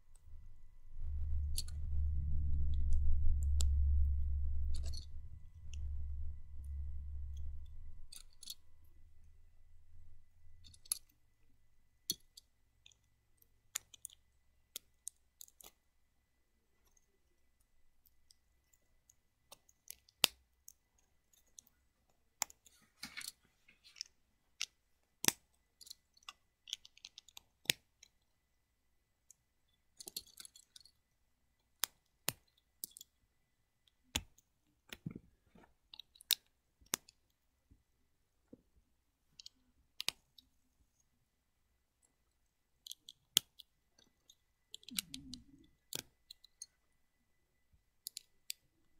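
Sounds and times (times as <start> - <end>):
low rumble: 0.0 - 10.9.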